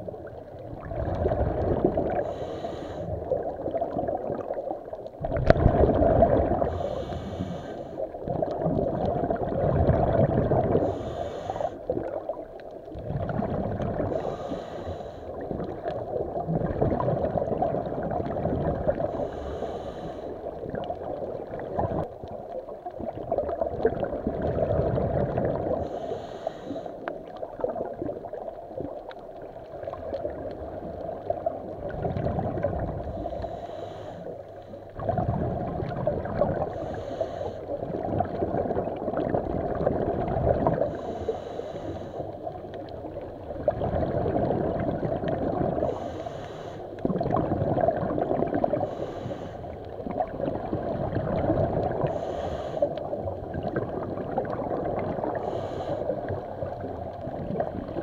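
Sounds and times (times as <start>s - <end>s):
muffled water sloshing: 0.0s - 58.0s
person breathing underwater: 1.9s - 3.4s, 6.3s - 8.2s, 10.4s - 12.0s, 13.1s - 15.8s, 18.9s - 20.7s, 25.6s - 27.2s, 33.0s - 35.7s, 36.6s - 37.9s, 40.7s - 42.5s, 45.7s - 47.0s, 48.6s - 50.0s, 51.9s - 53.2s, 55.2s - 56.4s
short breathing hiss: 2.2s - 3.2s, 6.7s - 8.0s, 10.8s - 11.8s, 14.1s - 15.3s, 19.1s - 20.4s, 25.8s - 27.0s, 33.2s - 34.4s, 36.8s - 37.6s, 41.0s - 42.3s, 45.9s - 46.9s, 48.9s - 49.7s, 52.1s - 52.9s, 55.4s - 56.1s.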